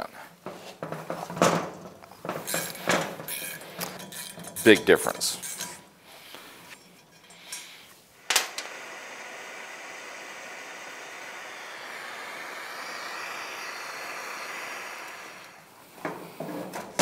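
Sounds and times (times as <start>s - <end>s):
torch flame hissing: 7.3s - 16.5s.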